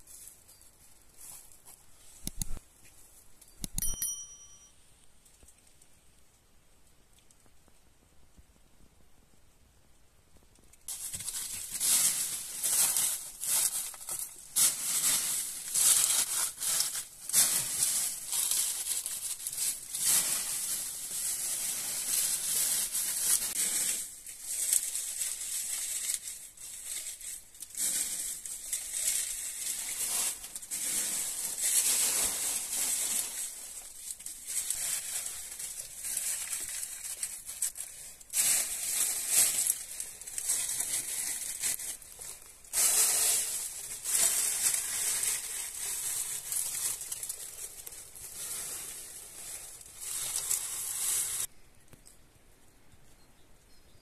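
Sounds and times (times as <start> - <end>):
dry leaves rustling and crunching: 10.9 - 51.5.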